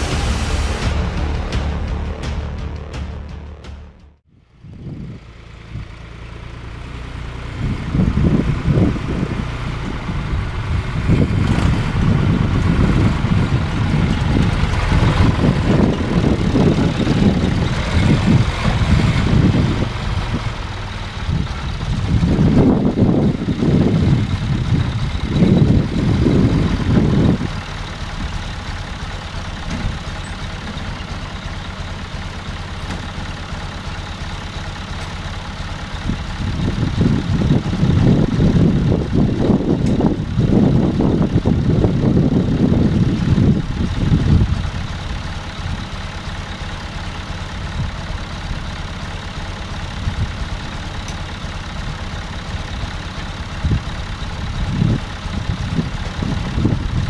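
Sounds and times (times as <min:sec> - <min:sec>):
uneven low rumble: 0:00.0 - 0:06.1
tractor engine idling: 0:00.0 - 0:57.0.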